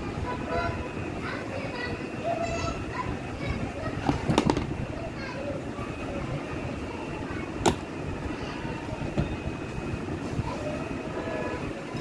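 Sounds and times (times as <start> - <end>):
lid clicks and knocks: 4.2 - 4.7, 7.6 - 7.9
plastic case latch clicking open: 7.6 - 7.8.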